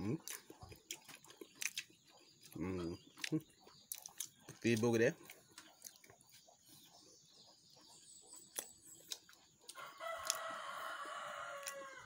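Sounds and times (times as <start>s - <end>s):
rooster crowing: 9.8s - 12.0s.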